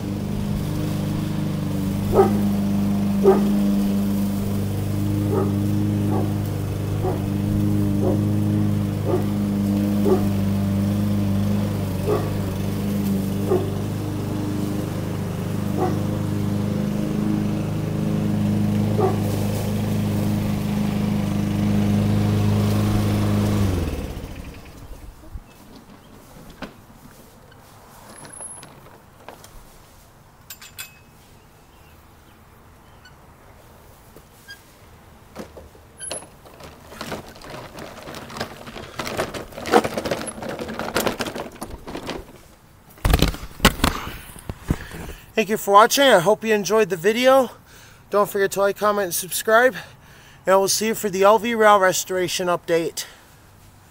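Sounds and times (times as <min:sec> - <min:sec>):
lawn mower engine running: 0:00.0 - 0:53.9
knocks and rustles: 0:23.8 - 0:31.3, 0:35.3 - 0:45.3.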